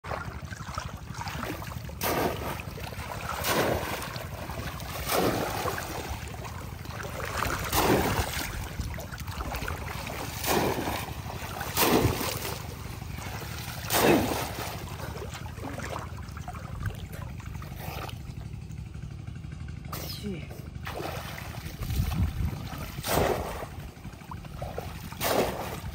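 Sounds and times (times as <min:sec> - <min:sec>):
heavy water splashing: 0:00.0 - 0:18.5, 0:20.8 - 0:25.9
wind rumble on microphone: 0:21.5 - 0:25.9.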